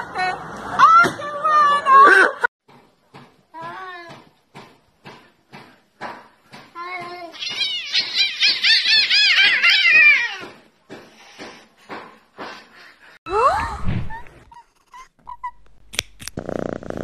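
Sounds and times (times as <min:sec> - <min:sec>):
cats yowling and fighting: 0:07.3 - 0:10.7.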